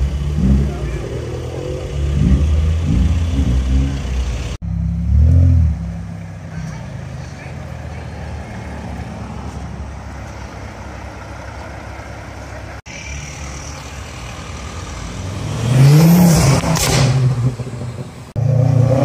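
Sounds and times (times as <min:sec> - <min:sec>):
road traffic: 0:00.0 - 0:19.0
car accelerating hard: 0:15.0 - 0:19.0.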